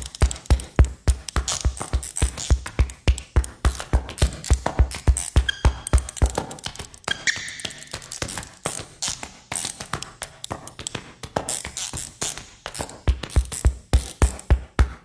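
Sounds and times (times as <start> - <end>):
percussive electronic music: 0.0 - 7.2
rapid electronic clicks and taps: 0.0 - 15.0.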